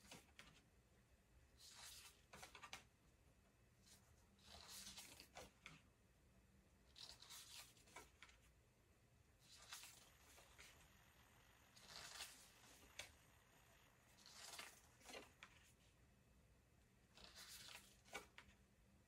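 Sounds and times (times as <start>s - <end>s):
cards swishing and tapping: 11.7s - 13.3s, 14.1s - 15.8s, 17.2s - 18.6s.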